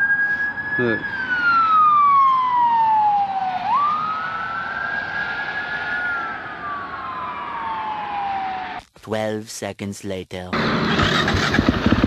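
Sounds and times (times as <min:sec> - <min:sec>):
ambulance siren wailing: 0:00.0 - 0:08.8.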